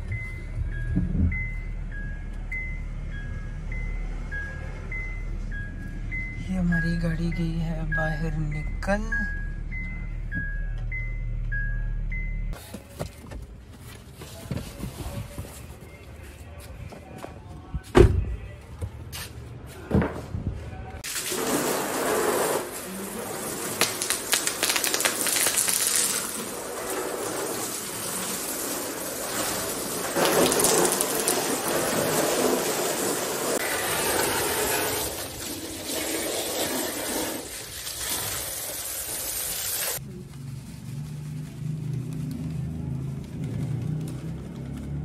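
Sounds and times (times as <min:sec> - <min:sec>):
hose water spraying on plastic mats: 0:21.0 - 0:40.0.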